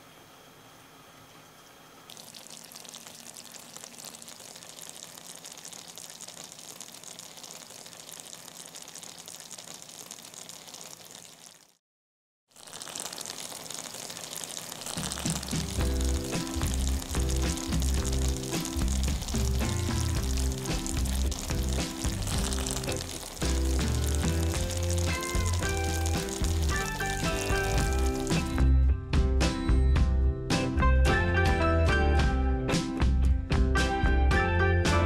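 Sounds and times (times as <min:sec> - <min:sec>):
food sizzling in a frying pan: 0:02.1 - 0:11.8, 0:12.5 - 0:28.6
music: 0:15.6 - 0:35.0.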